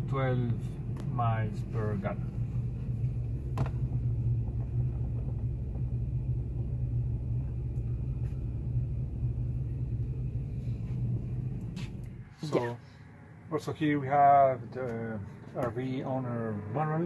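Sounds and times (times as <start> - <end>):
van engine idling: 0.0 - 13.0.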